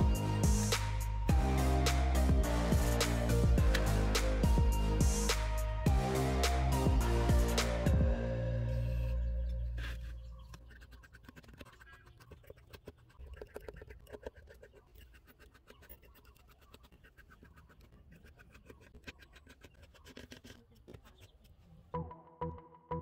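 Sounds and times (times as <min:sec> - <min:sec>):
screwdriver clicking and scratching: 0:09.8 - 0:21.6.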